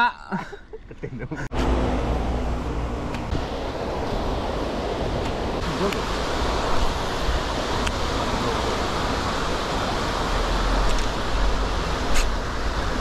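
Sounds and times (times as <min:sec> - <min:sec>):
stream running over stones: 0:03.2 - 0:13.0.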